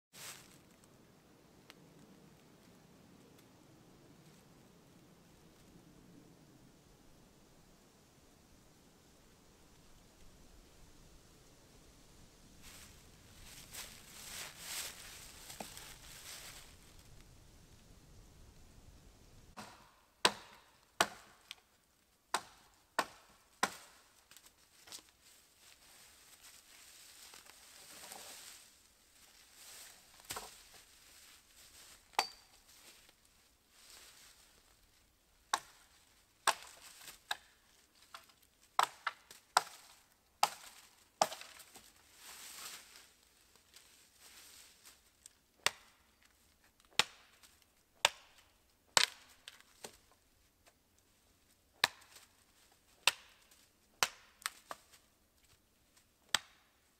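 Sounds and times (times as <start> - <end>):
axe chopping wood: 19.6 - 21.6, 22.3 - 24.0, 35.5 - 35.8, 36.4 - 37.5, 38.8 - 41.6, 46.9 - 47.3, 48.0 - 48.4, 49.0 - 50.0, 51.8 - 52.2, 53.0 - 54.8, 56.3 - 56.6.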